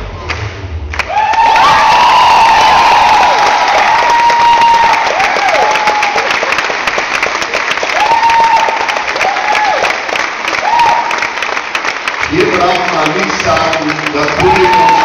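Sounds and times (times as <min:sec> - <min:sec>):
audience applauding: 0:00.3 - 0:15.0
crowd high calls: 0:12.3 - 0:15.0.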